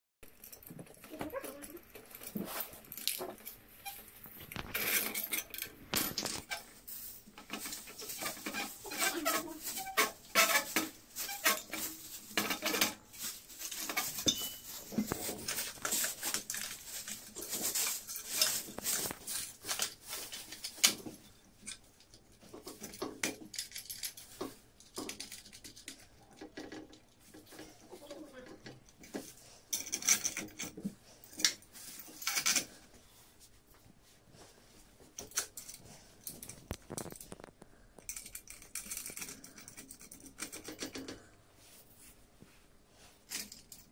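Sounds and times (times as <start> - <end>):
metal chain and clamp clinking: 0.2 - 6.7, 13.6 - 21.9, 22.6 - 26.9, 29.7 - 32.8, 38.0 - 41.2, 43.3 - 43.9.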